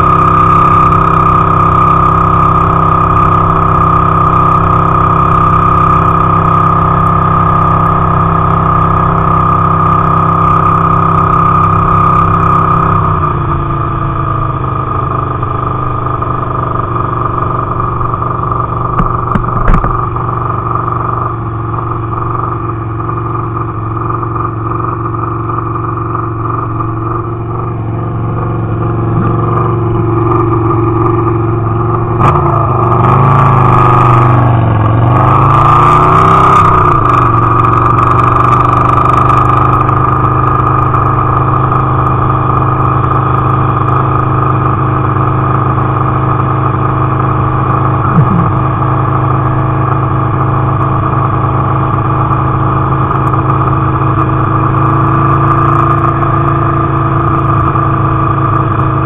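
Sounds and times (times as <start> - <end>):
motorcycle engine running: 0.0 - 59.0
brief knock: 19.0 - 20.0, 48.2 - 48.6.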